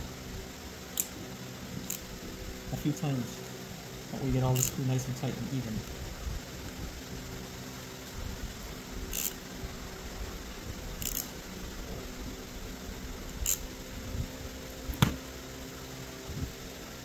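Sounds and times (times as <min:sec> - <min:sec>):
hand ratchet clicking: 0:01.0 - 0:01.2, 0:01.8 - 0:02.1, 0:04.5 - 0:04.9, 0:09.1 - 0:09.4, 0:11.0 - 0:11.4, 0:13.3 - 0:13.7
soft handling thuds: 0:14.9 - 0:15.3.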